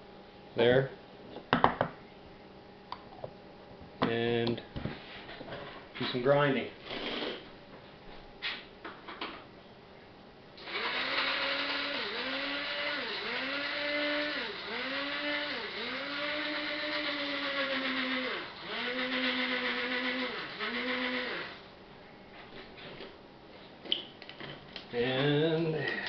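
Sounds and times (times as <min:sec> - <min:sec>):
electric grinder motor: 0:10.6 - 0:21.6.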